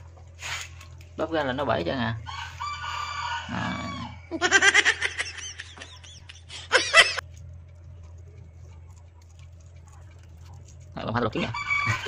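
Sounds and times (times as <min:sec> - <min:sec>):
chickens clucking: 0:11.2 - 0:12.0.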